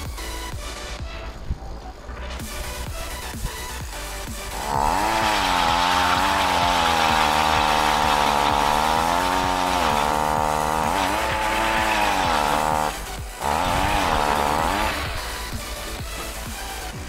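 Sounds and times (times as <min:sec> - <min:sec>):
ice auger engine drilling: 0:04.3 - 0:16.8.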